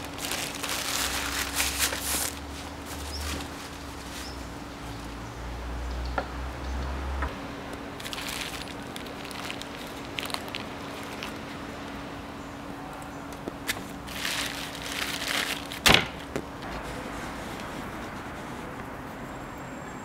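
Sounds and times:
plastic bag crinkling: 0:00.0 - 0:04.6, 0:08.0 - 0:12.0, 0:13.5 - 0:18.1
soft handling noises: 0:13.0 - 0:19.3.

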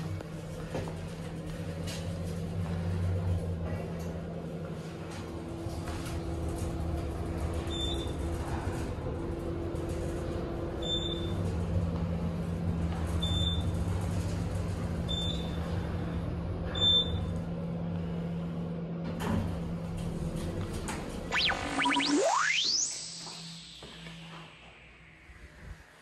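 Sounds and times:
elevator hum: 0:00.0 - 0:26.0
short high beeps: 0:21.3 - 0:24.6.

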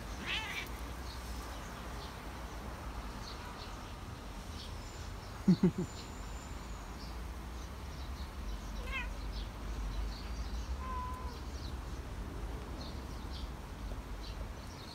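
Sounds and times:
birds chirping faintly: 0:00.0 - 0:14.9
cat meowing: 0:00.2 - 0:00.8, 0:08.8 - 0:09.2, 0:10.8 - 0:11.4.

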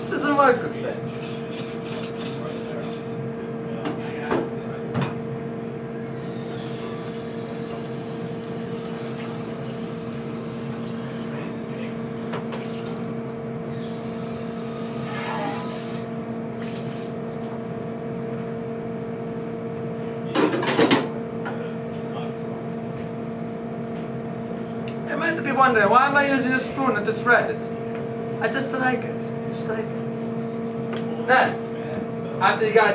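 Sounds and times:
kitchen equipment humming: 0:00.0 - 0:19.6.

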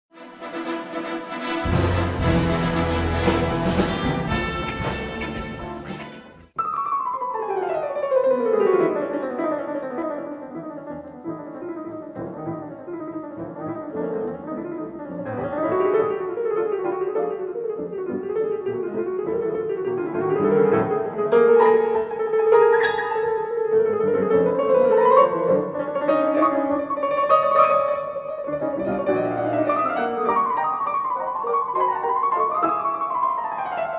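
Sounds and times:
fast piano piece: 0:00.1 - 0:33.9
loud dense music: 0:00.2 - 0:06.6.

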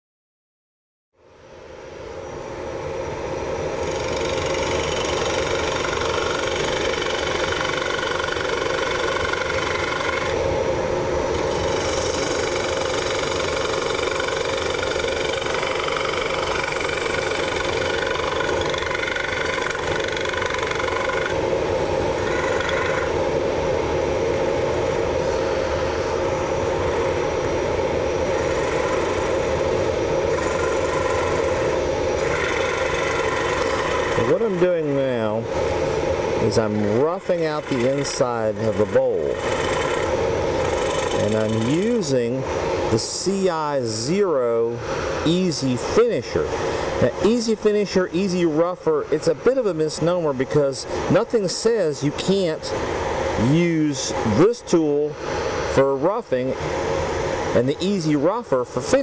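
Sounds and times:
wood lathe spinning: 0:03.8 - 0:10.4, 0:11.3 - 0:23.2, 0:28.2 - 0:35.4, 0:36.4 - 0:42.4
tool scraping wood: 0:03.9 - 0:10.4, 0:11.4 - 0:21.4, 0:30.3 - 0:34.7, 0:37.0 - 0:42.0.

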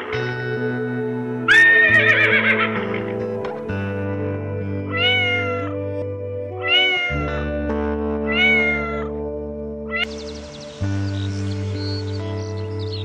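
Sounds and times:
background music: 0:00.0 - 0:13.0
kitten meowing: 0:04.9 - 0:05.7, 0:06.6 - 0:07.2, 0:08.3 - 0:09.1.

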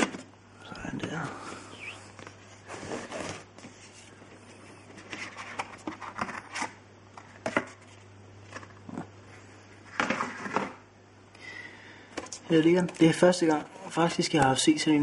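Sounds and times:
cardboard scraping rustle: 0:02.5 - 0:04.2.

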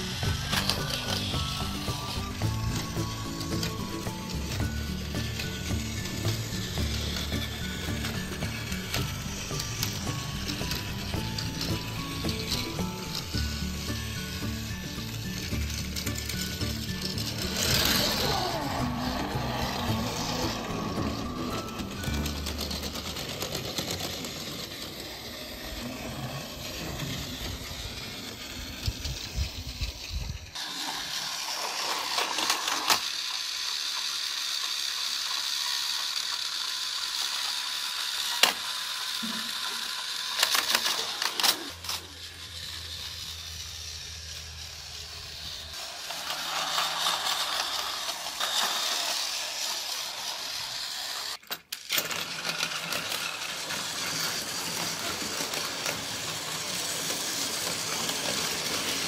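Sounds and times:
toy crane clicks and clatters: 0:00.0 - 0:59.0
toy trains whirring: 0:00.0 - 0:59.0.

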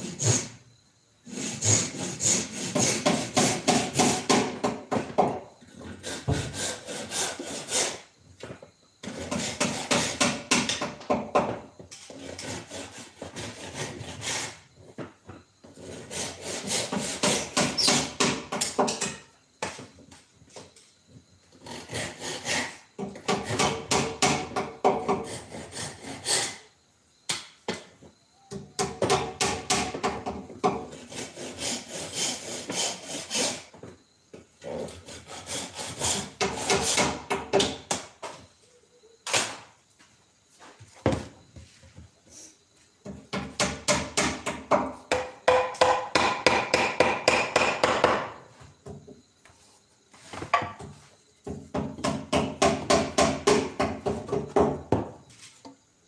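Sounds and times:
wood rubbing in rapid strokes: 0:01.3 - 0:04.3, 0:30.9 - 0:33.7.

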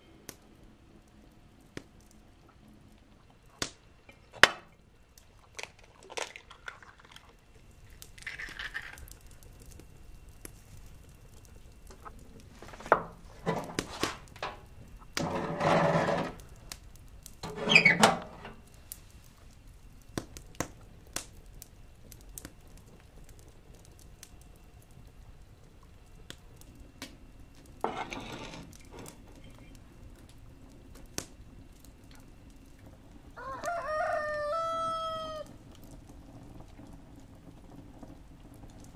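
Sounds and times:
cookware and wood clattering: 0:12.8 - 0:14.6, 0:15.2 - 0:16.4, 0:17.4 - 0:18.6, 0:27.8 - 0:29.1
squeaky creak: 0:17.4 - 0:18.6.

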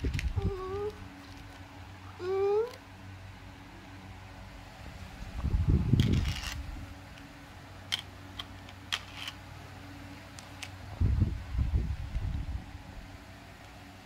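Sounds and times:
plastic toy cars clicking: 0:07.9 - 0:09.4.

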